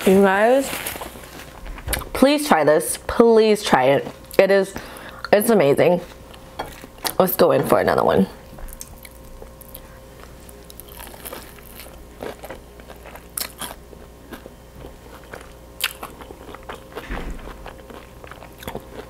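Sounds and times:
crunchy chewing: 0:08.7 - 0:19.0.

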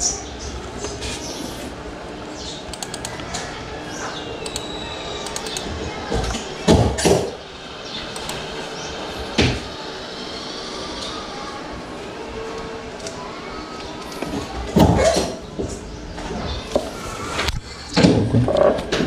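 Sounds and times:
keyboard and mouse clicks: 0:02.7 - 0:03.5, 0:04.4 - 0:05.7, 0:08.1 - 0:08.4.

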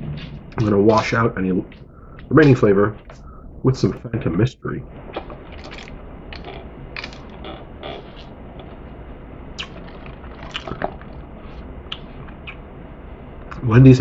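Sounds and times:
wet slurping and swallowing: 0:09.6 - 0:11.2.

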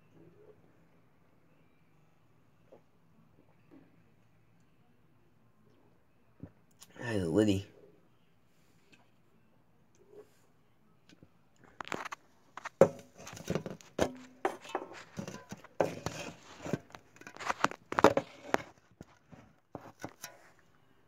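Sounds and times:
camera handling clicks and rustles: 0:11.7 - 0:20.5.

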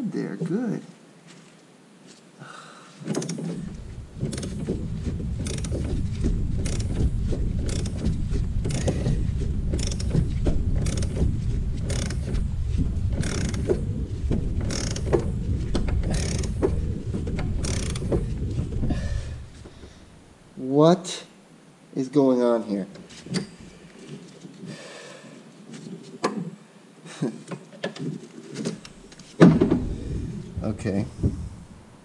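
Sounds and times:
ratchet handle clacking: 0:03.1 - 0:12.4, 0:13.1 - 0:13.9, 0:14.6 - 0:16.8, 0:17.4 - 0:18.2
ratchet rattling: 0:03.1 - 0:18.7.

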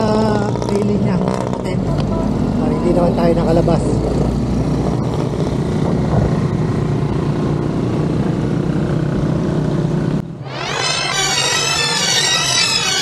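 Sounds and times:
motor vehicle engine hum: 0:00.0 - 0:13.0
road traffic noise: 0:00.0 - 0:13.0
music with sweeping tones: 0:10.4 - 0:13.0.

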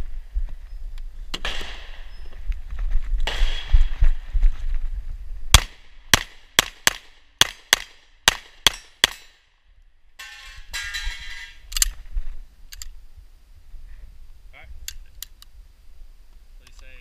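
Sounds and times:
pistol shots: 0:01.4 - 0:02.1, 0:03.2 - 0:04.0, 0:05.6 - 0:09.4.

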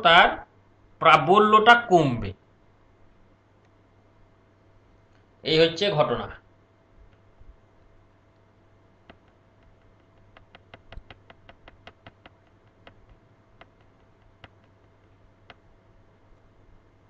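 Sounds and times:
mouse scroll wheel clicks: 0:09.1 - 0:15.7.

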